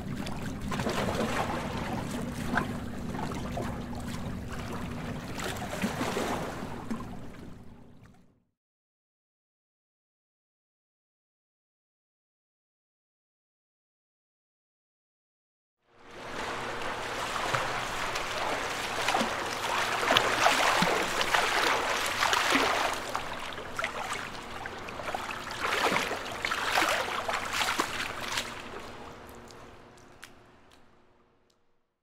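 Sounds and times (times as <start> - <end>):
shallow water splashing and lapping: 0.0 - 8.3, 16.0 - 30.8.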